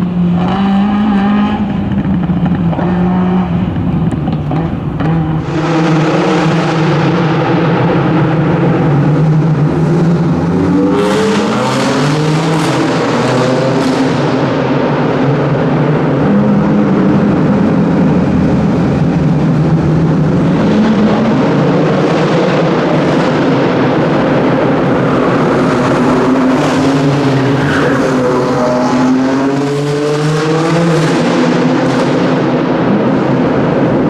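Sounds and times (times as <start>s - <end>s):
race car engine revving: 0.0s - 34.0s.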